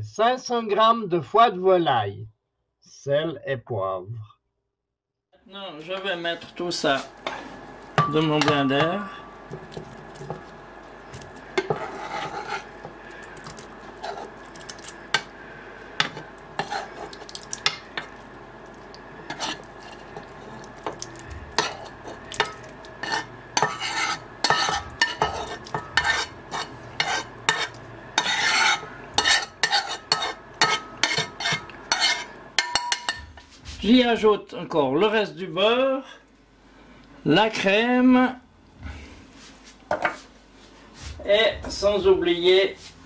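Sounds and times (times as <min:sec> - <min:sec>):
spoon scraping a frying pan: 0:06.9 - 0:15.4, 0:16.0 - 0:18.3, 0:18.9 - 0:33.5.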